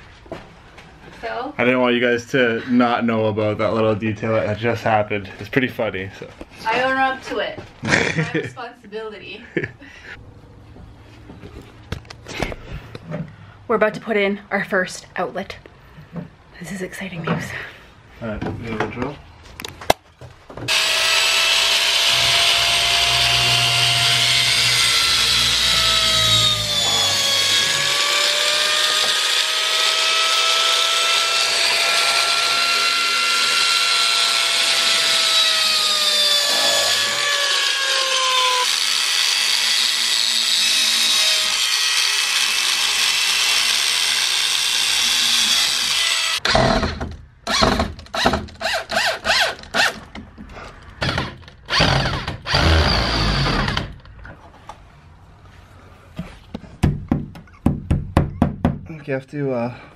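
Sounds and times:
electric drill boring into wood: 0:20.7 - 0:50.0, 0:51.0 - 0:54.0
knocks and thuds: 0:46.4 - 0:48.6, 0:56.5 - 0:58.9.

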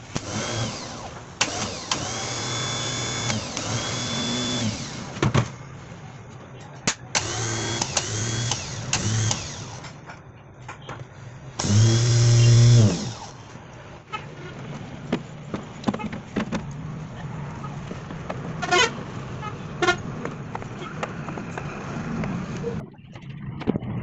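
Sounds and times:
starter motor whirring: 0:00.0 - 0:05.2, 0:07.2 - 0:10.0, 0:11.6 - 0:13.5.

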